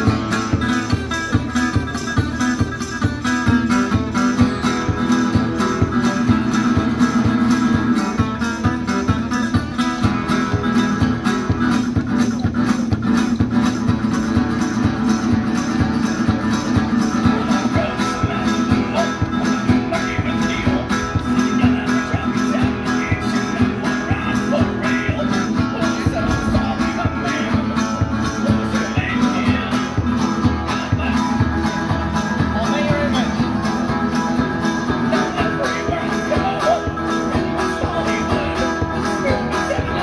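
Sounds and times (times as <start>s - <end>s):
harmonica: 0.0s - 11.6s
resonator guitar: 0.0s - 40.0s
steady beat: 0.0s - 40.0s.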